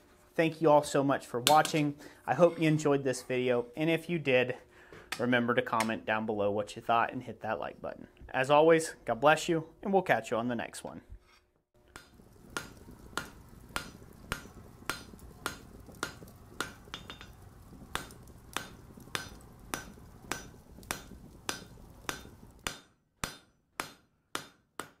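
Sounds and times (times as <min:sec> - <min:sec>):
hammer striking an anvil: 0:19.2 - 0:25.0.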